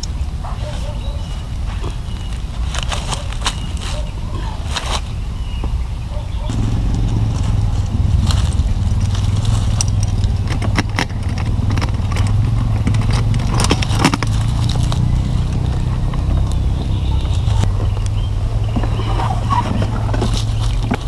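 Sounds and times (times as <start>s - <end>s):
motorcycle engine hum: 5.5s - 21.0s
clicks and rattles: 8.5s - 16.6s.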